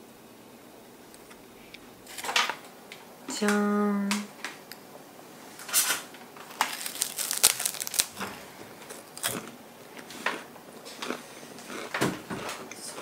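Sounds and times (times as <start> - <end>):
rice cakes crunching: 6.4 - 12.0.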